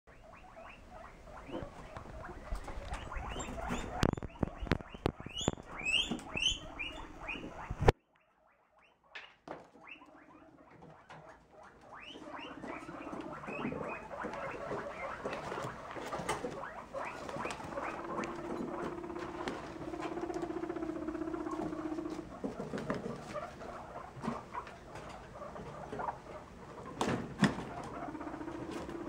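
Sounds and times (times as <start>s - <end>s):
guinea pig purring: 0.1s - 29.0s
sharp clicks: 2.0s - 8.0s.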